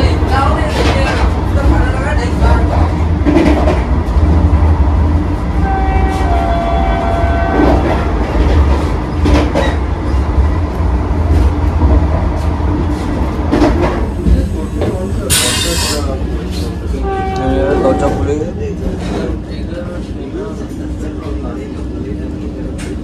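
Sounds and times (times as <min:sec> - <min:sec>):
train rumbling at speed: 0:00.0 - 0:23.0
train horn: 0:05.5 - 0:08.1, 0:17.0 - 0:18.4.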